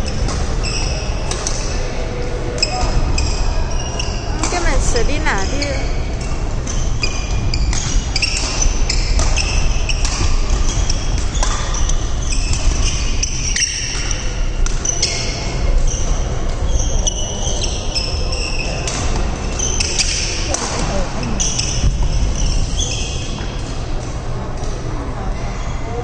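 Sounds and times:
sneakers squeaking on floor: 0.0 - 24.1
rackets hitting shuttlecock: 7.6 - 15.6, 18.8 - 21.9.

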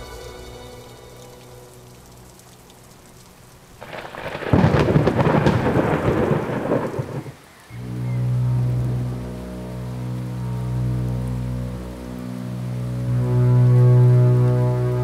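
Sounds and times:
rain hiss: 0.0 - 15.0
thunder rumbling: 3.8 - 9.3.

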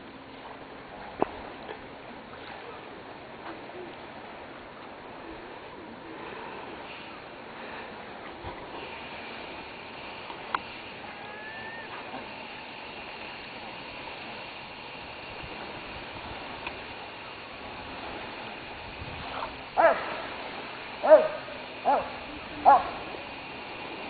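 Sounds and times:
shoreline water washing: 0.0 - 24.0
dog barking: 19.8 - 20.1, 21.0 - 23.0.

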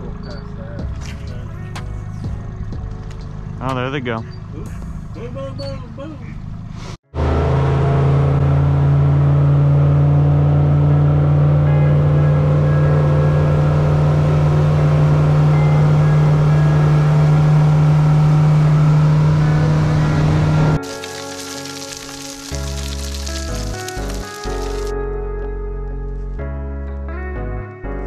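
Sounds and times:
music: 0.0 - 5.8, 11.4 - 18.4, 19.5 - 28.0
outboard motor running: 11.0 - 24.9
rush of wake: 20.8 - 24.9.

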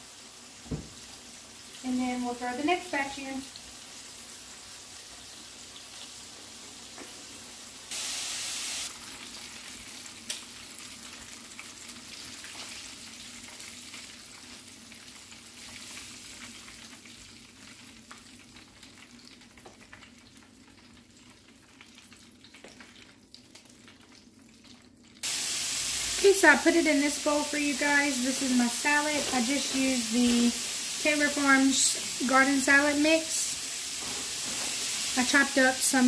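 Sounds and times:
oil crackling and sizzling: 0.0 - 36.0.

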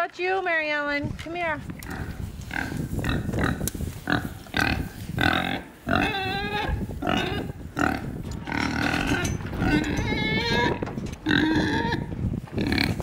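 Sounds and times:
pigs grunting: 1.8 - 13.0.

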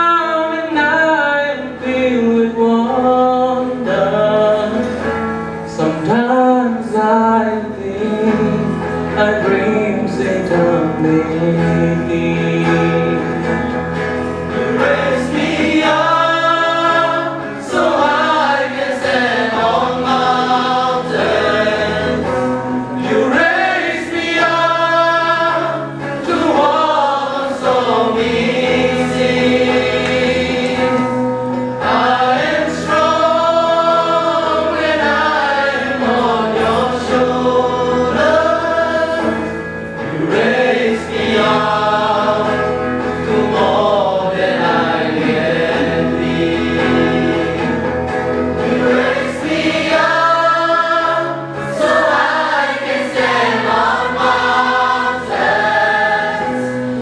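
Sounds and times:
electric guitar: 0.0 - 57.0
young male choir singing: 14.5 - 57.0.

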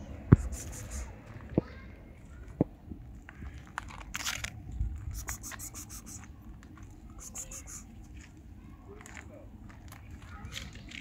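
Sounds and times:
cat crunching dry food: 3.5 - 6.8.

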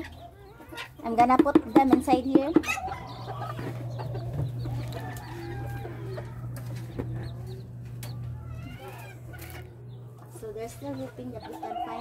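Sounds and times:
chickens clucking: 0.0 - 12.0.

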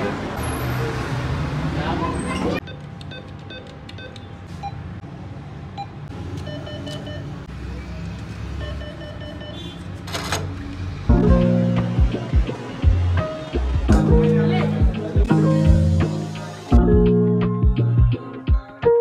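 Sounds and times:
atm key-press ticks: 2.6 - 4.3, 6.3 - 7.3
atm beeps: 2.6 - 5.0, 5.7 - 7.4, 8.5 - 10.7
music: 11.1 - 19.0.

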